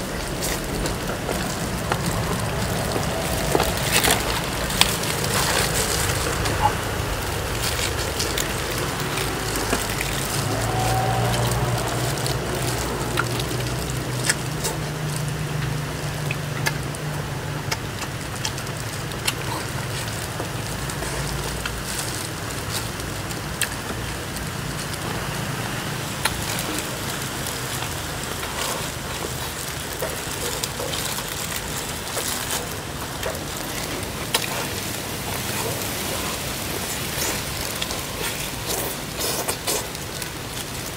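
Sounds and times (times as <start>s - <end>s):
rain-like hiss: 0.0s - 40.9s.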